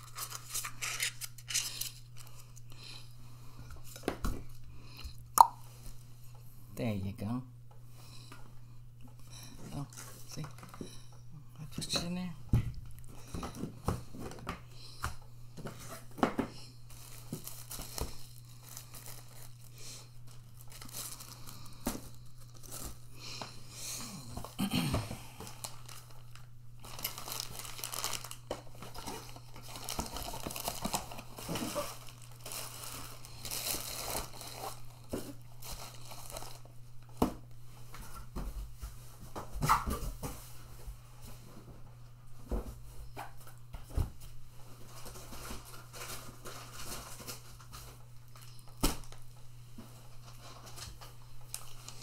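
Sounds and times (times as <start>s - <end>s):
plastic and cardboard crinkling: 0.0s - 2.7s, 15.6s - 23.5s, 25.4s - 40.5s, 42.4s - 52.0s.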